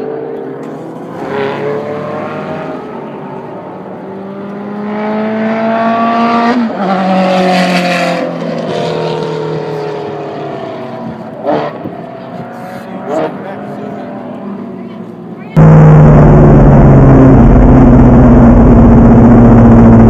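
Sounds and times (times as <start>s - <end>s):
sports car passing at speed: 0.0s - 14.8s.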